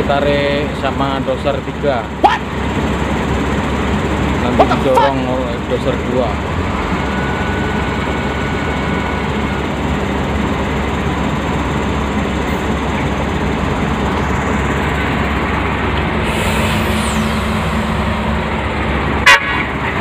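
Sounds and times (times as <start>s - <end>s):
heavy diesel engines under load: 0.0s - 20.0s.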